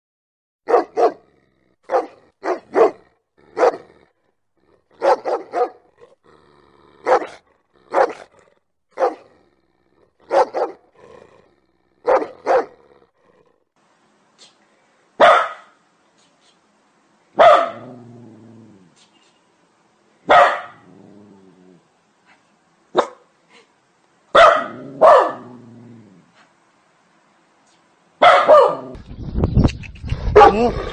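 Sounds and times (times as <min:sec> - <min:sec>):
dog barking: 0:00.7 - 0:01.2, 0:01.9 - 0:03.9, 0:05.0 - 0:05.9, 0:07.0 - 0:08.3, 0:09.0 - 0:09.3, 0:10.3 - 0:10.8, 0:12.0 - 0:12.8, 0:15.2 - 0:15.8, 0:17.4 - 0:18.0, 0:20.3 - 0:20.8, 0:22.9 - 0:23.3, 0:24.3 - 0:25.6, 0:28.2 - 0:29.0, 0:30.4 - 0:30.7.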